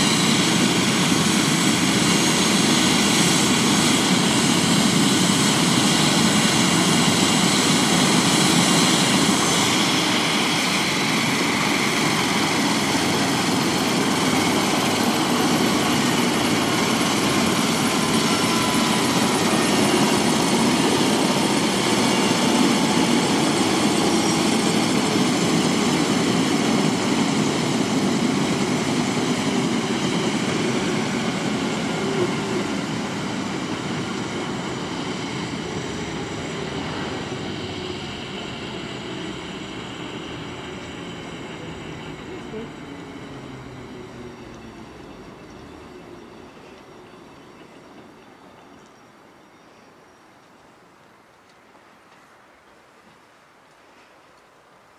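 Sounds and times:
helicopter rotor rushing: 0.0 - 46.6
helicopter engines whining: 0.0 - 49.2.

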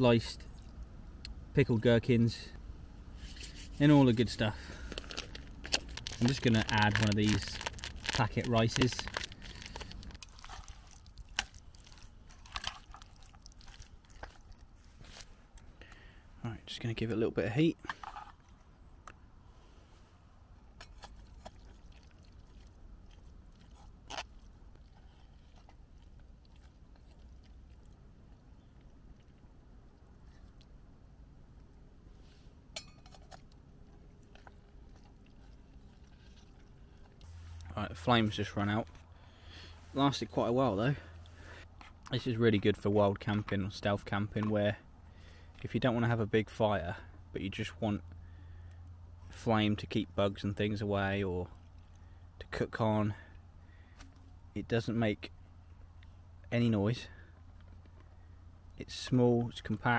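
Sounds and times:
wet squishing of stirred food: 4.8 - 15.6, 20.8 - 31.9, 33.1 - 38.1.

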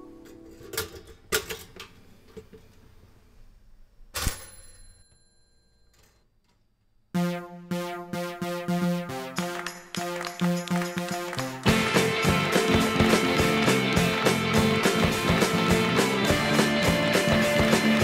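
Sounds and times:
synthesizer music with drum-machine beat: 7.2 - 18.0.

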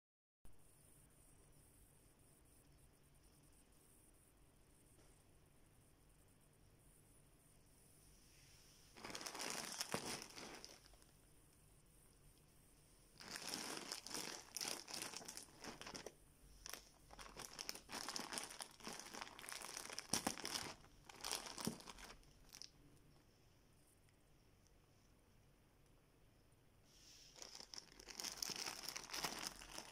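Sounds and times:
plastic mailer bag crinkling: 9.0 - 11.1, 13.2 - 22.7, 27.4 - 29.9.

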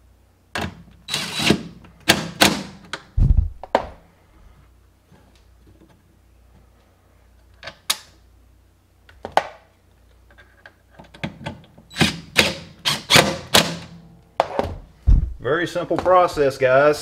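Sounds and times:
impact driver hammering: 12.0 - 14.0.

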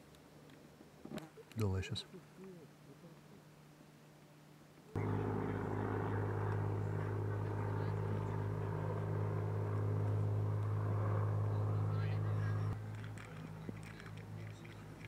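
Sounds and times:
mechanical drone: 5.0 - 12.8.

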